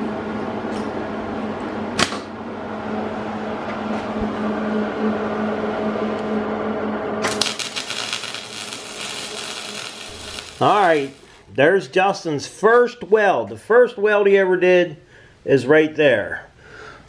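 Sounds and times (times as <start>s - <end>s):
arc welding crackle: 7.2s - 11.4s
stick welder humming: 7.2s - 11.5s.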